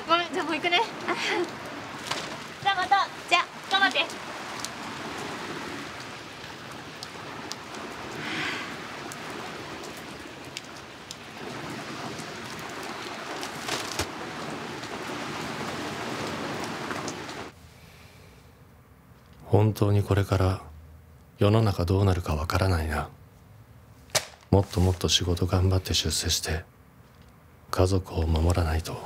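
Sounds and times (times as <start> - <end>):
steady rain falling: 0.0 - 17.6, 23.8 - 29.0.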